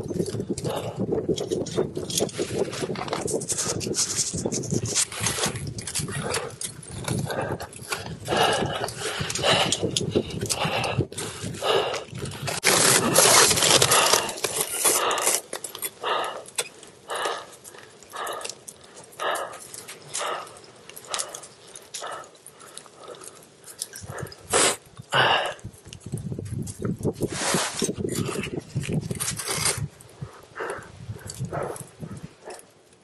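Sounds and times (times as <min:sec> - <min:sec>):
person breathing hard: 0:00.6 - 0:01.1, 0:05.3 - 0:25.7, 0:30.2 - 0:32.6.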